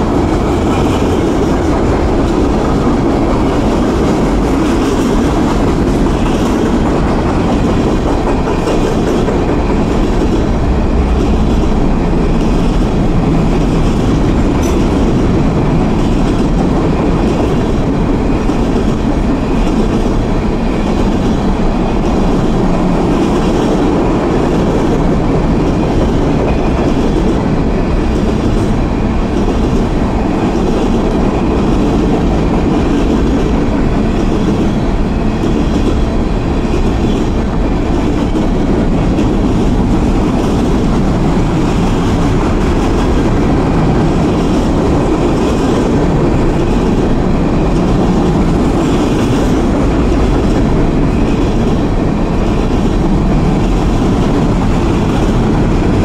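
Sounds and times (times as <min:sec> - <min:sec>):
freight train wheels rumbling: 0:00.0 - 0:56.0.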